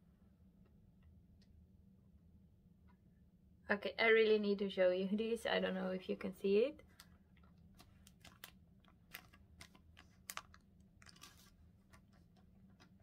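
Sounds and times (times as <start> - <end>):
paper plate clicks and rustle: 7.8 - 13.0.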